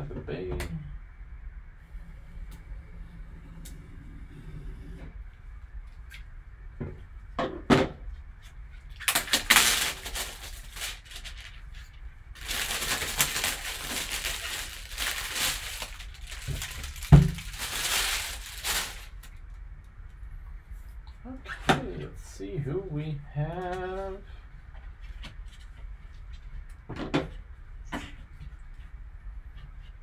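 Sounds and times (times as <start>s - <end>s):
cardboard and plastic rustling: 8.4s - 19.4s.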